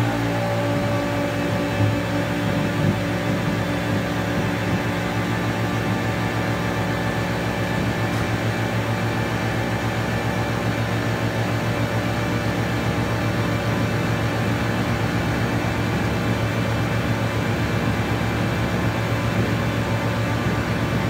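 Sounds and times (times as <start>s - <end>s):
synthesiser noise drone: 0.0s - 10.7s.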